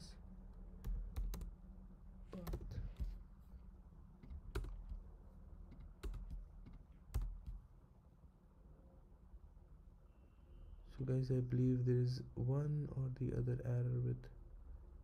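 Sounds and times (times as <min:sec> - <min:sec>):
faint low room hum: 0:00.0 - 0:15.0
keyboard keystrokes: 0:00.8 - 0:01.5, 0:04.2 - 0:05.1, 0:05.7 - 0:07.6.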